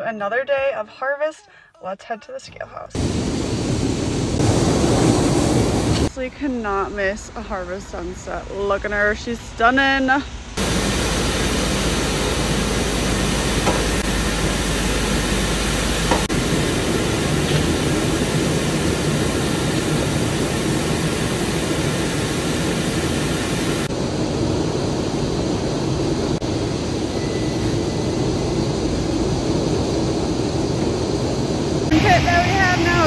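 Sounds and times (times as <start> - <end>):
machinery running: 8.9 - 33.0.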